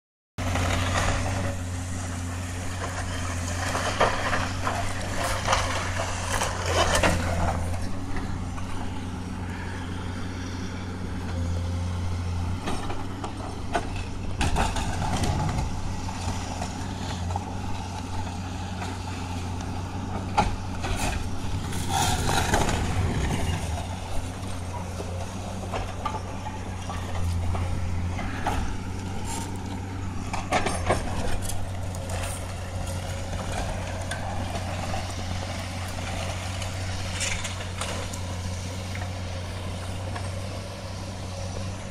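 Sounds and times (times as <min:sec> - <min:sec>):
concrete crunching and crashing: 0:00.4 - 0:08.5, 0:12.6 - 0:39.2
excavator engine running: 0:00.4 - 0:41.9.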